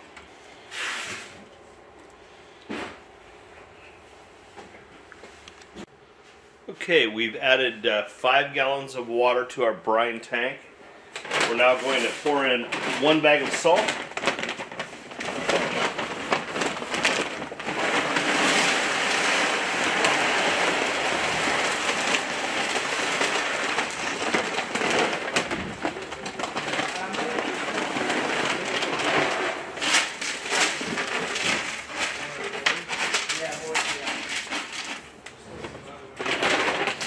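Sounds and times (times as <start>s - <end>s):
salt pouring into plastic tank: 0.7s - 1.3s, 11.5s - 32.4s
plastic bag crinkling: 11.2s - 35.2s.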